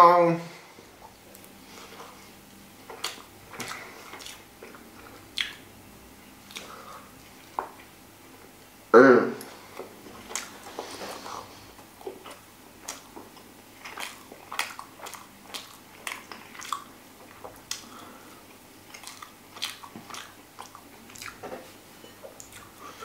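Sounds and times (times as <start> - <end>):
person chewing: 0.8 - 5.7, 6.4 - 7.9, 9.4 - 23.0
mouth clicks and smacks: 2.9 - 5.6, 6.5 - 6.7, 12.0 - 17.9, 18.9 - 21.5.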